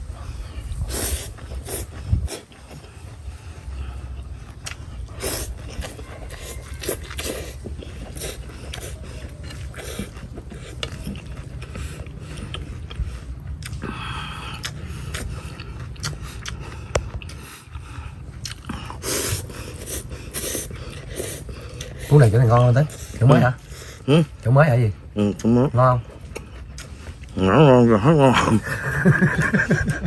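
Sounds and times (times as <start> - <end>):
chewing: 0.0 - 30.0
steady low hum: 0.0 - 30.0
man slurping noodles: 0.7 - 2.5.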